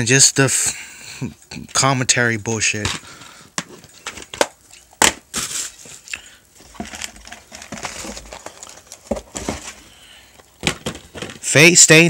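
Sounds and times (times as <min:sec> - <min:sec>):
crinkling and rustling: 0:02.6 - 0:11.8
plastic cases clicking: 0:10.4 - 0:11.5.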